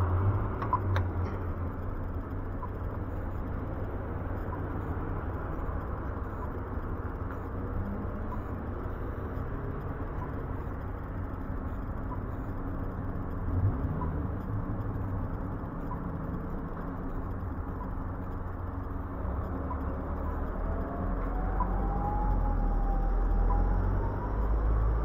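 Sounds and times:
distant road traffic rumble: 0:00.0 - 0:25.0
crossing signal pips: 0:02.2 - 0:13.0.

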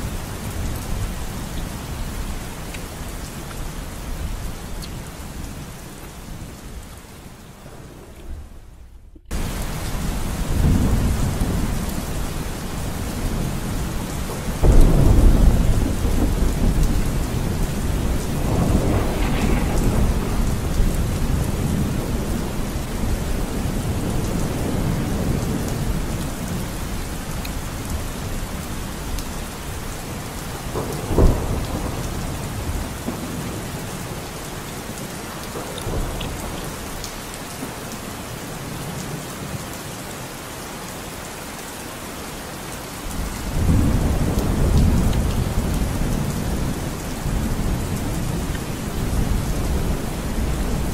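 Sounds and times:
steady rain falling: 0:00.0 - 0:50.9
low rumbles: 0:14.6 - 0:22.3.

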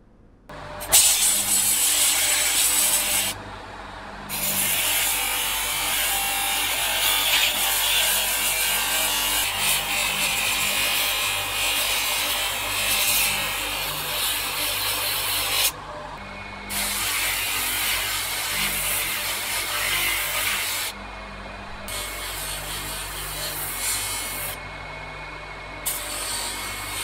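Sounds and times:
electric motor hum: 0:00.5 - 0:27.0
steel grinding on sanding disc: 0:00.9 - 0:03.4, 0:16.7 - 0:21.0, 0:21.9 - 0:24.6, 0:25.8 - 0:27.0.

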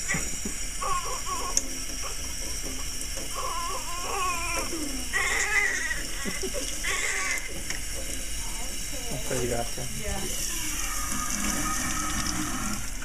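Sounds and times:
baby crying: 0:00.8 - 0:01.6, 0:03.3 - 0:07.6, 0:10.5 - 0:11.8.

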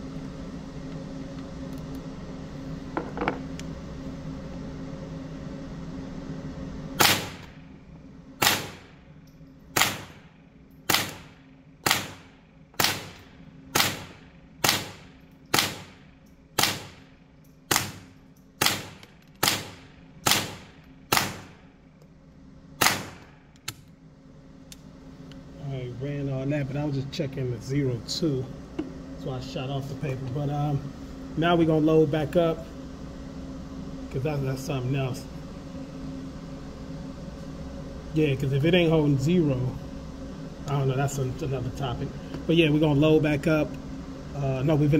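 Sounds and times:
steady hum: 0:00.0 - 0:44.9
rifle shots echoing indoors: 0:07.0 - 0:07.5, 0:08.4 - 0:08.9, 0:09.7 - 0:10.3, 0:10.9 - 0:21.7, 0:22.8 - 0:23.4.

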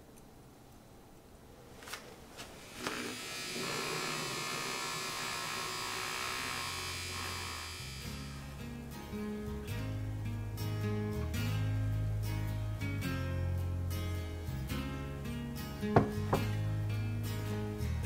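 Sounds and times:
milk frother whirring: 0:02.4 - 0:08.5
acoustic guitar music: 0:08.4 - 0:18.0
small knocks: 0:15.9 - 0:16.6.

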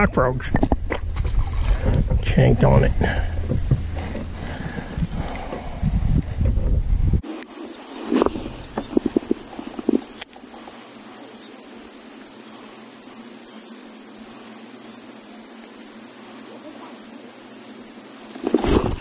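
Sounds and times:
crickets chirping: 0:00.0 - 0:19.0
faint outdoor hiss: 0:00.0 - 0:19.0
loud thump and rustle: 0:00.6 - 0:02.3, 0:03.2 - 0:05.7, 0:18.4 - 0:19.0.

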